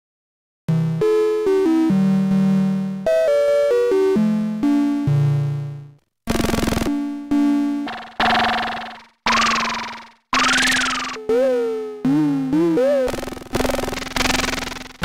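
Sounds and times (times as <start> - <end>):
synthesizer notes: 6.5 - 14.9
burst of synthesizer noise: 7.9 - 11.2.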